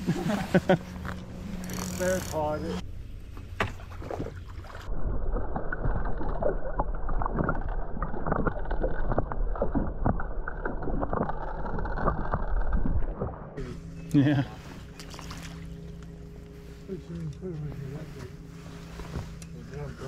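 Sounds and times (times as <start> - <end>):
underwater knocks and clicks: 5.4 - 13.6.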